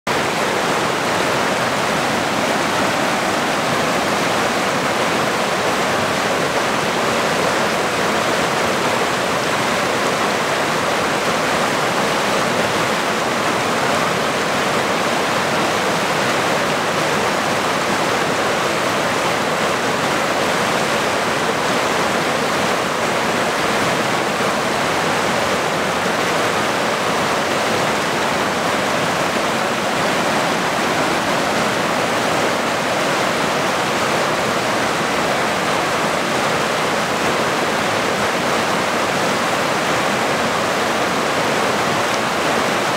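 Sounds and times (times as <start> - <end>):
river rushing over rocks: 0.1 - 42.9.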